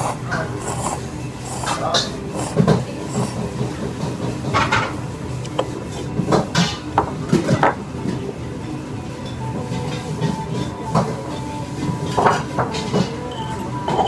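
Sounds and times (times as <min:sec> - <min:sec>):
slurping noodles: 0:00.0 - 0:03.8
tableware clinking: 0:09.2 - 0:14.0.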